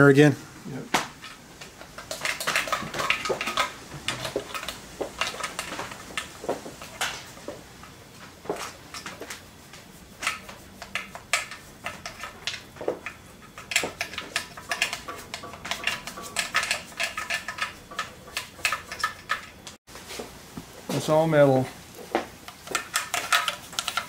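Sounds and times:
metal tool clicking and scraping: 0:10.2 - 0:19.8, 0:22.5 - 0:24.0.

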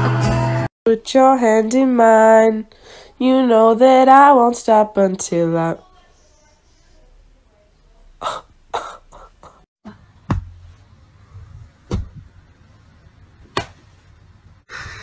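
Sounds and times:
hands slapping on cushion: 0:13.4 - 0:13.9.

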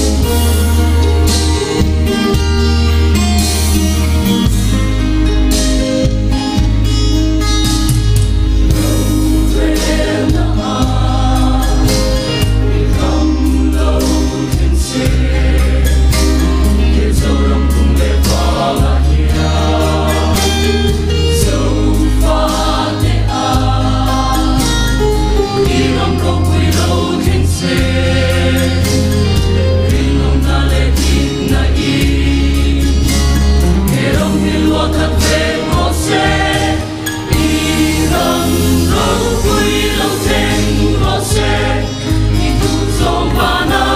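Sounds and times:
mixed choir singing a hymn: 0:00.0 - 0:02.5, 0:08.6 - 0:43.9
low bass accompaniment: 0:00.0 - 0:43.9.

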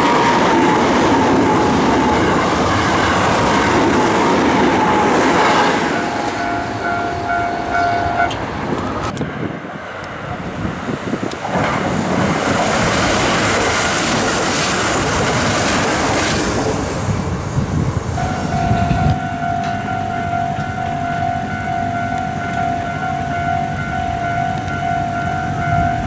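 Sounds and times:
level crossing bell ringing: 0:00.0 - 0:08.6, 0:18.2 - 0:26.0
electric train passing: 0:00.0 - 0:26.0.

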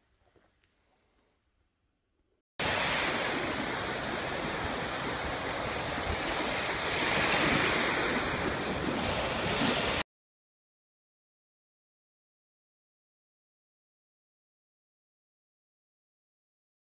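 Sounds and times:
waves breaking on beach: 0:02.6 - 0:10.0.

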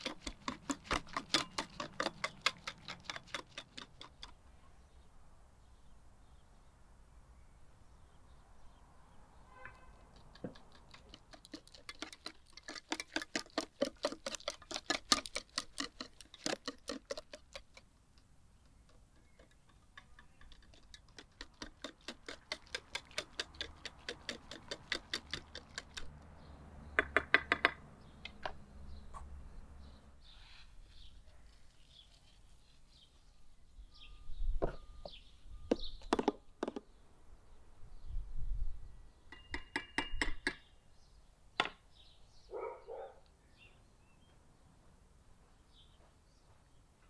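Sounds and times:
whisk clinking against bowl: 0:10.8 - 0:17.8.

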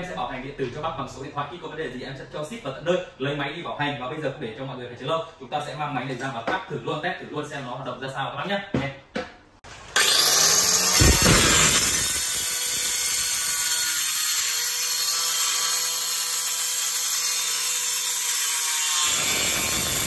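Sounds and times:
tile cutter grinding whine: 0:09.7 - 0:20.0.

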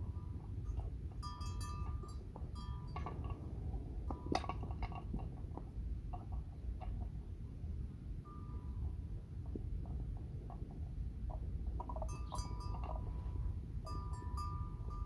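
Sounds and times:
livestock bell clinking: 0:00.0 - 0:05.0, 0:08.2 - 0:09.2, 0:11.8 - 0:15.0
steady low rumble: 0:00.0 - 0:15.0.

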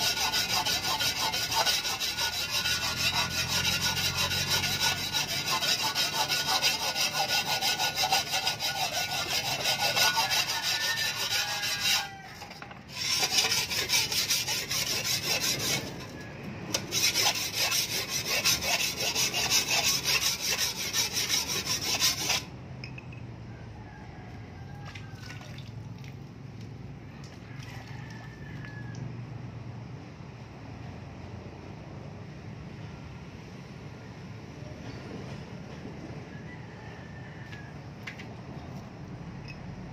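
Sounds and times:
sharpening stone grinding steel blade: 0:00.0 - 0:22.5.

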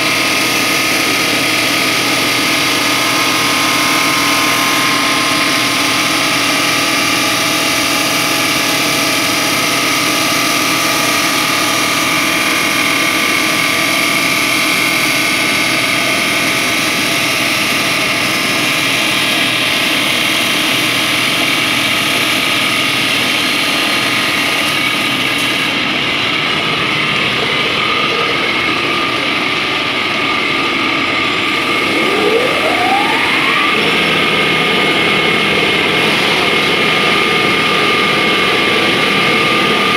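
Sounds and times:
grinding noise: 0:00.0 - 0:14.7, 0:31.4 - 0:38.8
saw whining: 0:00.0 - 0:39.9.

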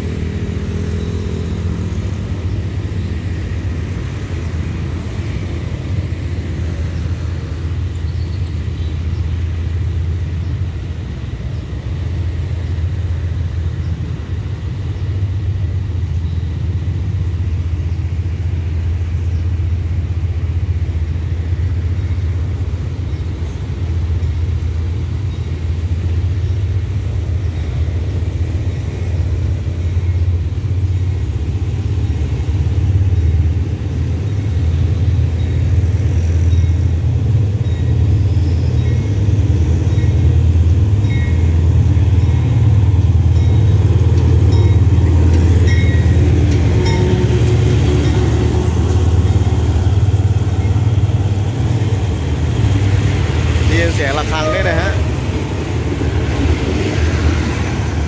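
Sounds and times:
diesel locomotive rumble: 0:00.0 - 0:58.0
locomotive bell ringing: 0:36.4 - 0:51.1.

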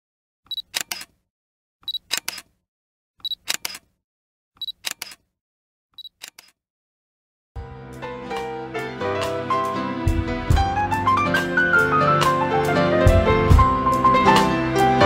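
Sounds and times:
camera focus beep: 0:00.5 - 0:01.1, 0:01.9 - 0:02.4, 0:03.2 - 0:03.8, 0:04.6 - 0:05.2, 0:06.0 - 0:06.6
camera shutter clicks: 0:00.5 - 0:01.1, 0:01.9 - 0:02.5, 0:03.3 - 0:03.9, 0:04.6 - 0:05.2, 0:06.0 - 0:06.6.

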